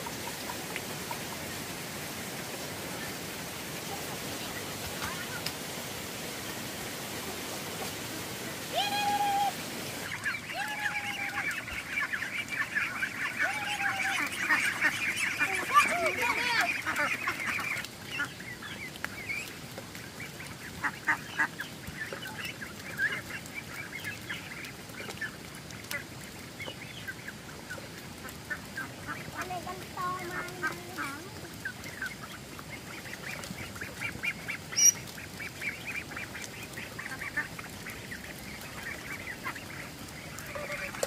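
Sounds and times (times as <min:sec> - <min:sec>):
ducks calling: 0:08.9 - 0:41.0.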